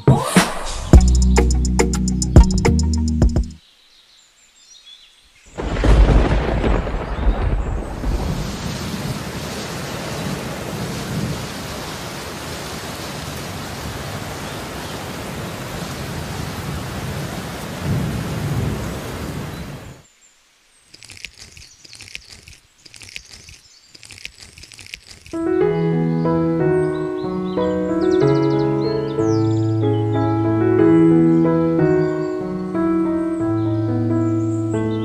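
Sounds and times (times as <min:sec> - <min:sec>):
piano music: 0:00.9 - 0:03.6, 0:25.4 - 0:35.0
heavy rain: 0:05.5 - 0:20.7
thunder rumble: 0:05.6 - 0:11.9.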